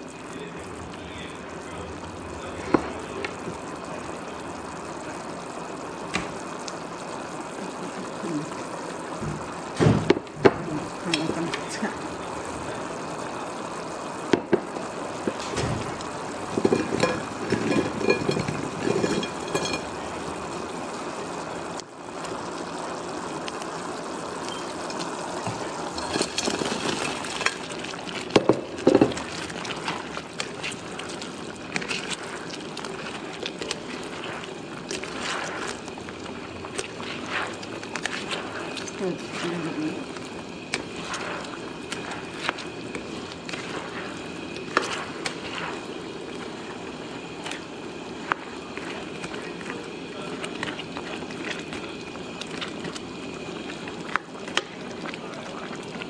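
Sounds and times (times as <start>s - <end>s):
sauce bubbling in a wok: 0.0s - 56.0s
chicken stirred through sauce: 25.0s - 56.0s.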